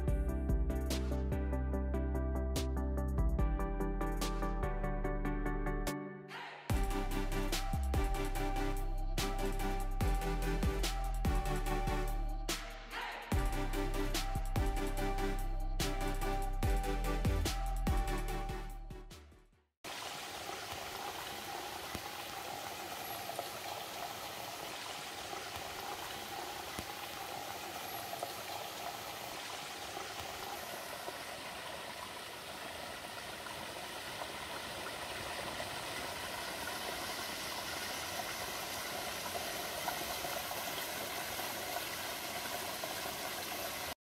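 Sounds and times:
stream running over rocks: 19.9s - 44.0s.

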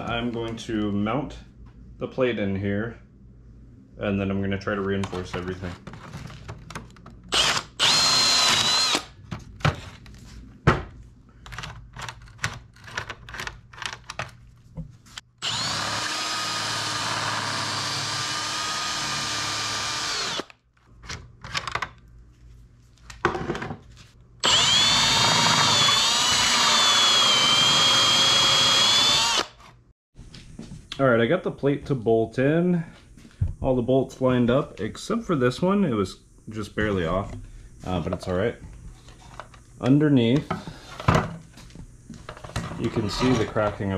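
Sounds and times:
cordless drill whining: 7.3s - 9.1s, 15.4s - 20.5s, 24.4s - 29.6s.

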